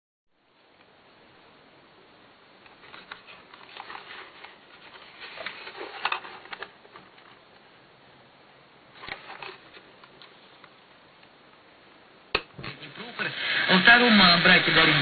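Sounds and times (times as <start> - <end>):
cable rustling and scraping: 2.6 - 7.5, 9.0 - 10.7
plastic speaker handling noise: 2.7 - 7.5, 9.0 - 10.4.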